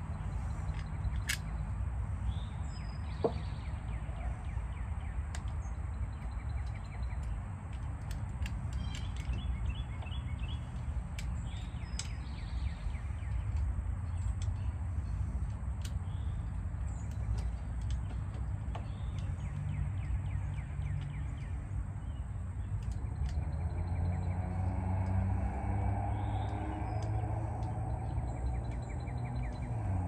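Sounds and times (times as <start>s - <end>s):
birds chirping: 0.0s - 30.0s
light clicks: 22.6s - 30.0s.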